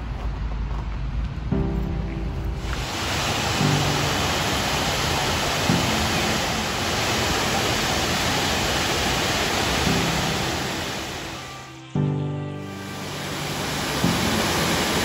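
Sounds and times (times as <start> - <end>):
waterfall rushing: 2.6 - 11.8, 12.6 - 15.0.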